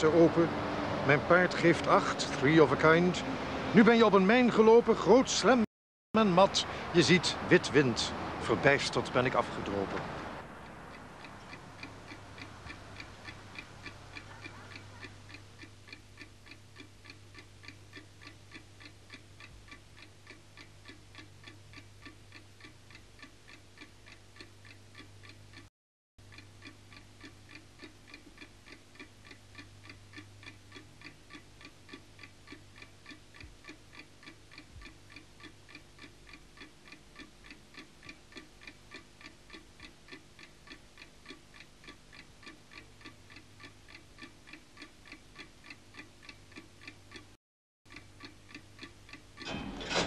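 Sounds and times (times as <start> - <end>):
clock ticking: 10.4 - 50.0.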